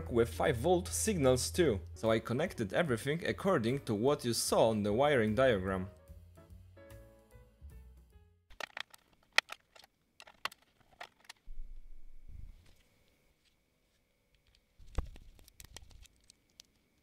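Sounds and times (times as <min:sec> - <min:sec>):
plastic connectors clicking and rattling: 0:08.5 - 0:11.5, 0:14.4 - 0:17.0.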